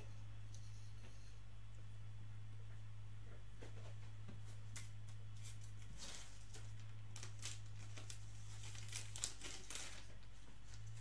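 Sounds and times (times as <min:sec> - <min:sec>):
low electrical hum: 0:00.0 - 0:11.0
cards and paper rustling: 0:04.7 - 0:11.0.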